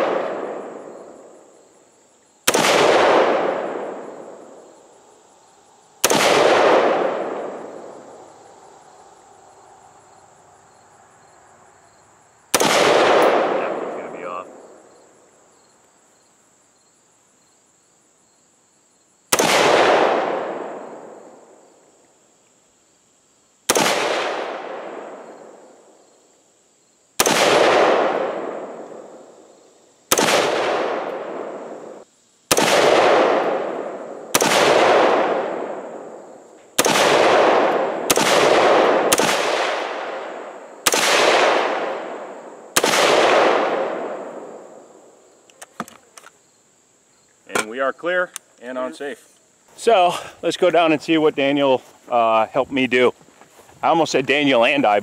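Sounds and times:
rifle shots with echo: 0:00.0 - 0:01.4, 0:02.4 - 0:04.7, 0:06.0 - 0:08.2, 0:12.5 - 0:14.8, 0:19.3 - 0:21.6, 0:23.7 - 0:25.8, 0:27.2 - 0:29.4, 0:30.1 - 0:45.0.

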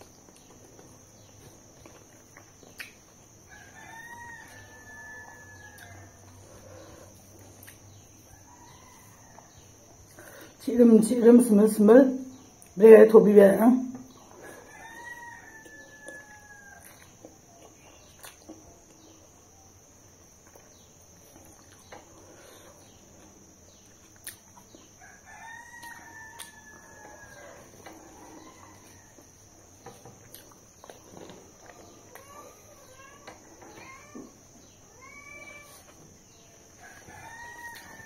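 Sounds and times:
soft clicks of eating by hand: 0:01.8 - 0:03.2, 0:07.3 - 0:08.0, 0:15.6 - 0:19.1, 0:23.2 - 0:24.9, 0:25.8 - 0:27.2, 0:28.8 - 0:32.4
rooster crowing: 0:03.5 - 0:07.0, 0:08.2 - 0:09.9, 0:14.4 - 0:17.1, 0:25.0 - 0:30.0, 0:36.7 - 0:38.0.

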